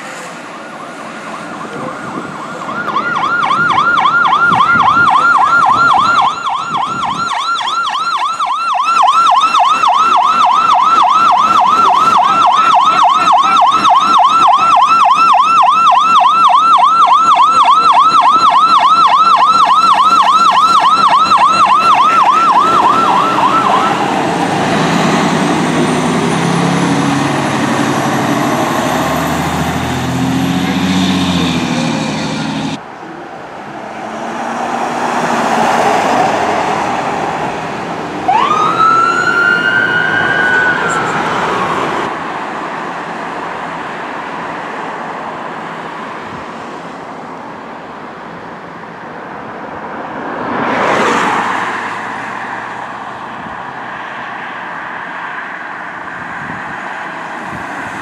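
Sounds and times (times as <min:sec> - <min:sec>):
vehicle engine rumble: 0:00.0 - 0:54.4
siren yelping: 0:00.7 - 0:25.2, 0:38.2 - 0:42.1.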